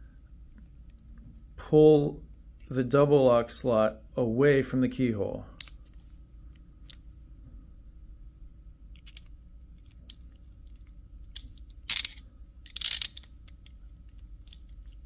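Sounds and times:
scraping clicks of handcuff: 8.9 - 15.0
handcuff lock clicking: 9.0 - 13.8.

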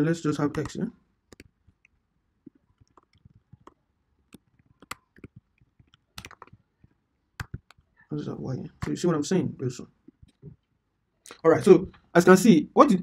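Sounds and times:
keyboard typing: 0.4 - 8.0, 8.7 - 9.1.

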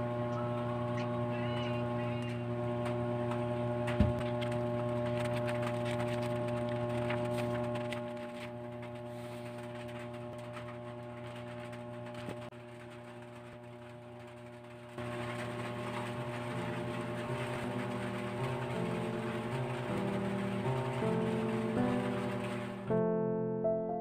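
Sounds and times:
low electrical hum: 0.0 - 23.8
soft piano notes: 16.4 - 24.0.

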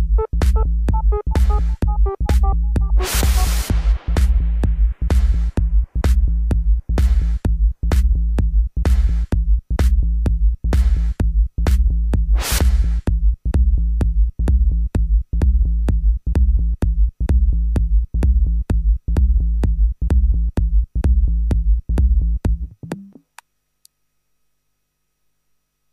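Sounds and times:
deep bass: 0.0 - 23.0
sharp drum machine click: 0.4 - 4.0.

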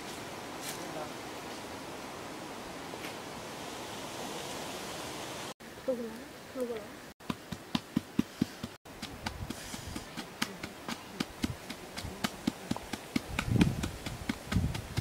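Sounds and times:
pestle pounding in a mortar: 7.2 - 15.0.

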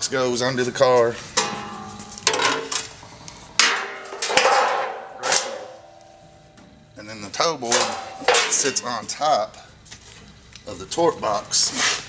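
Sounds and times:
steel panels clanking: 1.3 - 3.0, 3.6 - 9.2.

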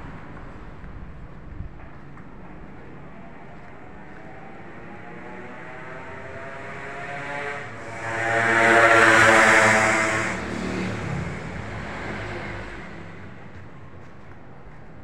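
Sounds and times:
vehicle driving past: 3.2 - 13.8.

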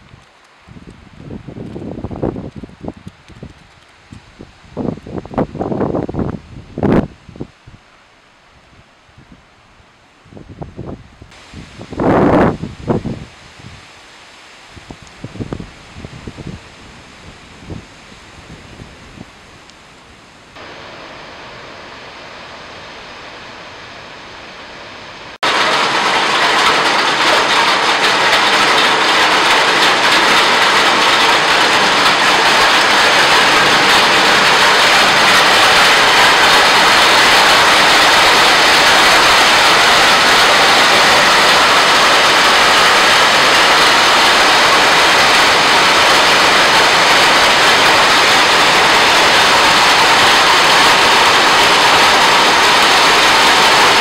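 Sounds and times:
light wind: 0.0 - 54.0
heavy rain and hail pelting: 25.4 - 54.0.

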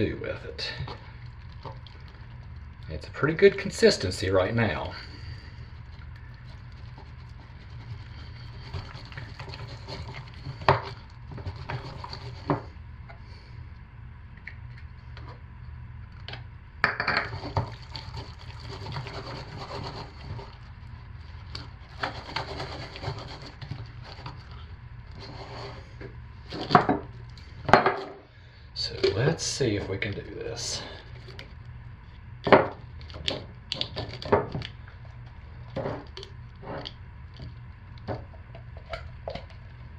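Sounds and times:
steady low hum: 0.0 - 39.9
spatula scraping thick soap: 4.7 - 12.7, 17.3 - 20.7, 21.5 - 26.7.

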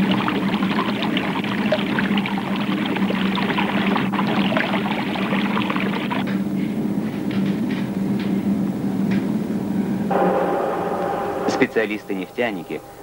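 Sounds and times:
liquid bubbling and fizzing: 0.0 - 6.2
steady low hum: 6.4 - 13.0.

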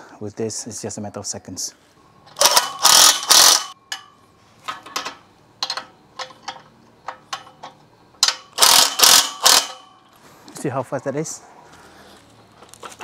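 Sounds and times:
impact wrench bursts: 2.3 - 3.8, 8.2 - 10.0.

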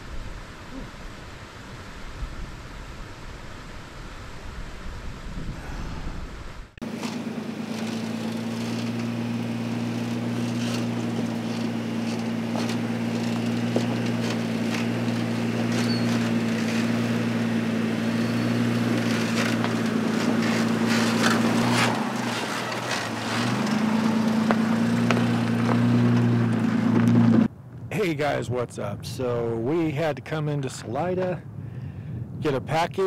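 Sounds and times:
vehicle engine running: 6.6 - 27.5
tyres crunching over gravel: 6.8 - 27.5.

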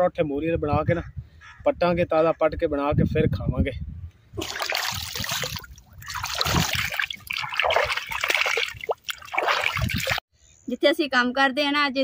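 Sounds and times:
water splashing into furrow: 4.4 - 10.2.

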